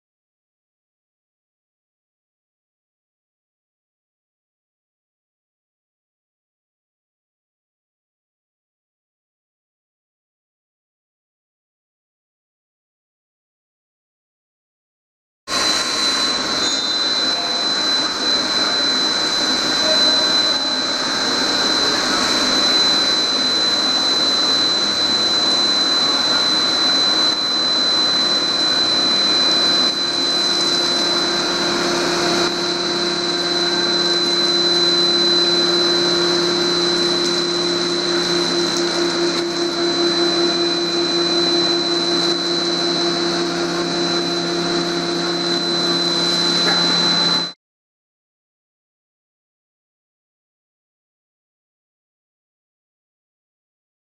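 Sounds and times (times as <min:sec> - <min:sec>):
high whine: 0:15.5 - 0:47.6
machine noise: 0:15.5 - 0:47.6.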